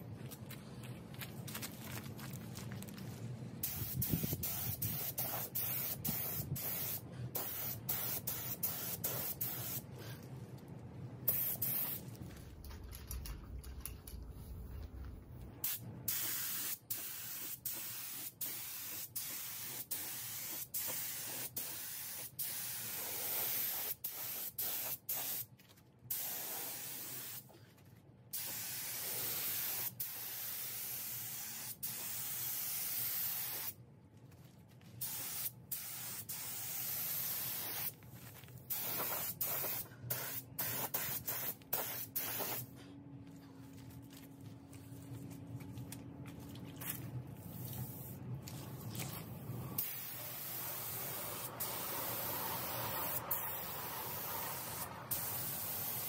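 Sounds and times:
spray gun hissing: 0:03.6 - 0:09.8, 0:11.3 - 0:12.0, 0:15.6 - 0:25.4, 0:38.7 - 0:42.7, 0:49.8 - 0:56.0.

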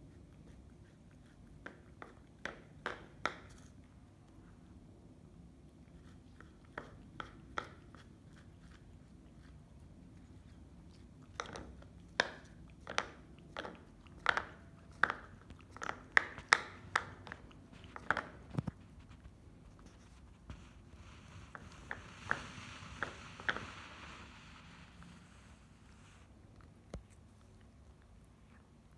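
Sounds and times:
cat chewing wet clicks: 0:00.1 - 0:04.7, 0:05.4 - 0:18.7.

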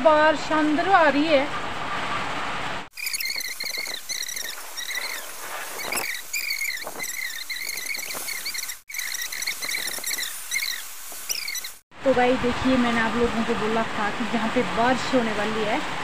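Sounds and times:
rain falling: 0:02.4 - 0:11.8
short wavering chirps: 0:02.9 - 0:11.8.

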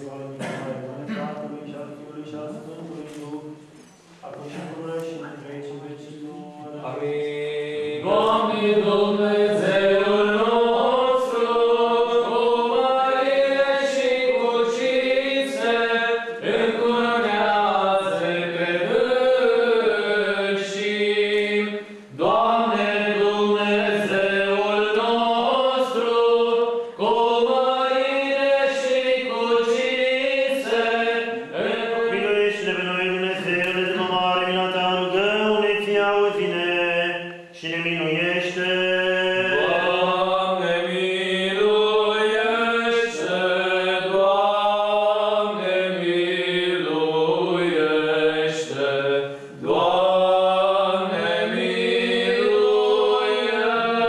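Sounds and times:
choir singing liturgical chant: 0:04.5 - 0:54.0.

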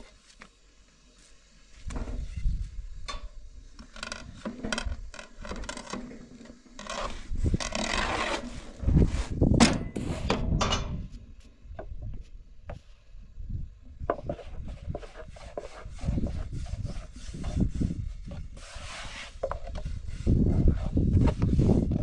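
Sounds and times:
scraping on metal griddle: 0:06.0 - 0:10.5, 0:14.2 - 0:22.0.

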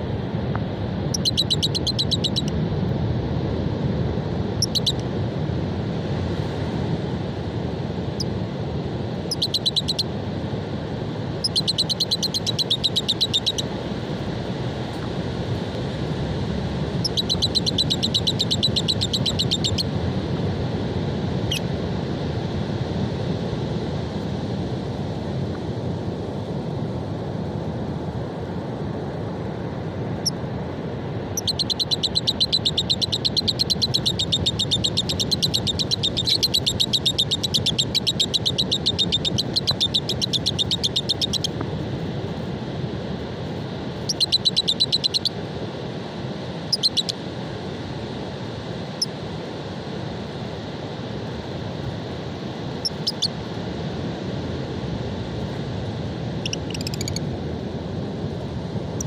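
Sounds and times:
wind: 0:00.0 - 0:59.0
lovebirds chattering: 0:01.2 - 0:02.5, 0:11.4 - 0:13.6, 0:17.0 - 0:19.8, 0:31.4 - 0:41.5.

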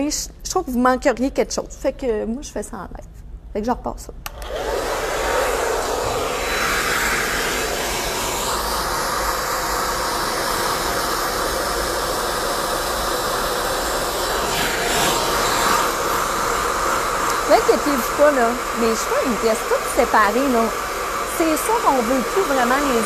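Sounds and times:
hair dryer running: 0:04.2 - 0:23.0.

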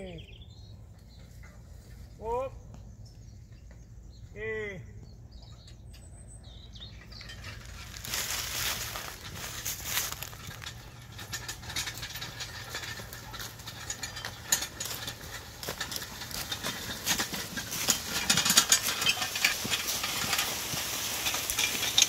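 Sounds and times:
plow scraping over stones: 0:06.4 - 0:22.0
mule hoof steps: 0:06.8 - 0:22.0.

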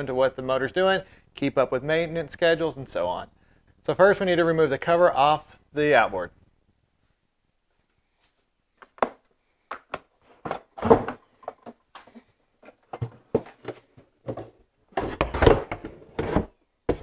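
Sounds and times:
plastic cowling clunks and knocks: 0:10.4 - 0:17.0.

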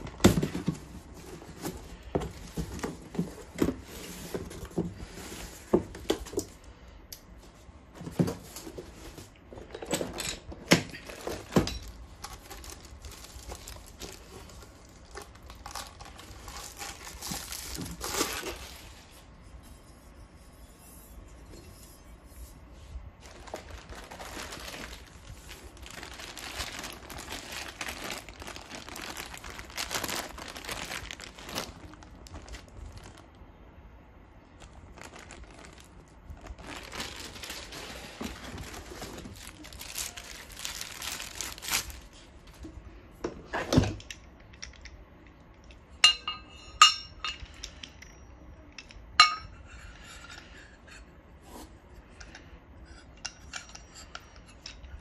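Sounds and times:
plastic bag crinkling: 0:10.9 - 0:19.2, 0:23.2 - 0:33.6, 0:34.4 - 0:42.6.

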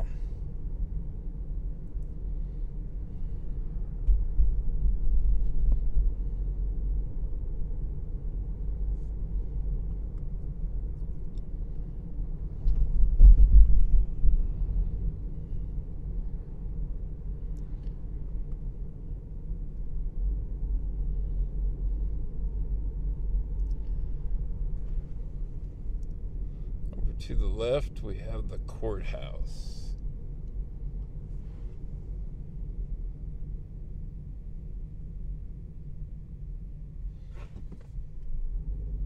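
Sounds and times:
car road rumble: 0:00.0 - 0:39.0.

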